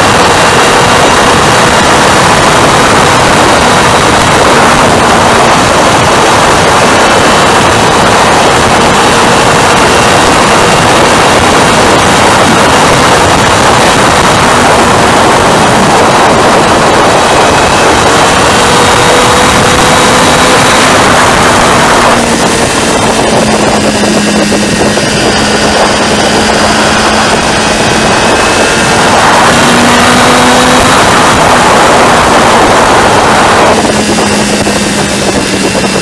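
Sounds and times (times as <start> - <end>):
faint motorcycle engine: 0.0 - 36.0
wind rushing over microphone: 0.0 - 36.0.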